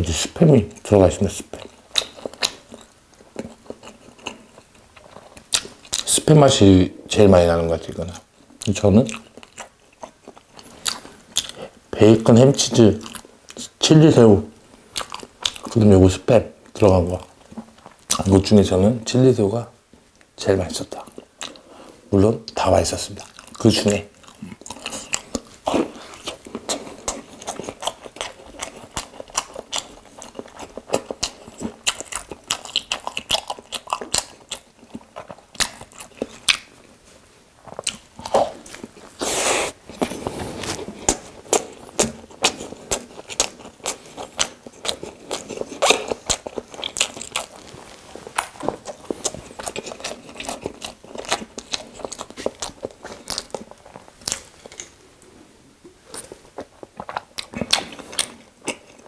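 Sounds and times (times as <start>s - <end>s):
crunchy chewing and biting: 1.5s - 6.2s, 8.6s - 11.8s, 14.7s - 15.8s, 23.1s - 37.0s, 37.6s - 54.9s, 56.1s - 59.0s.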